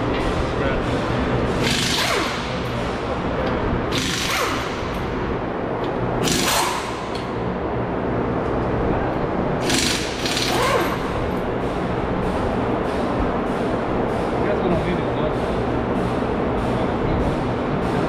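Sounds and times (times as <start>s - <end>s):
workshop background noise: 0.0s - 18.0s
pneumatic air tool bursts: 1.6s - 2.6s, 3.9s - 4.9s, 6.2s - 7.1s, 9.6s - 11.1s.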